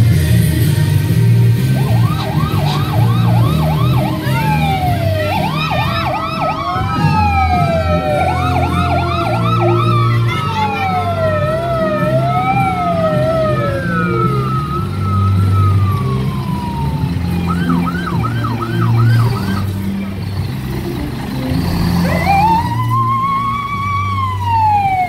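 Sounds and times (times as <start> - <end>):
siren yelping: 1.6 - 19.8, 22.0 - 25.0
wail sirens: 1.6 - 20.0, 21.6 - 25.0
siren winding up: 1.7 - 16.8, 22.0 - 25.0.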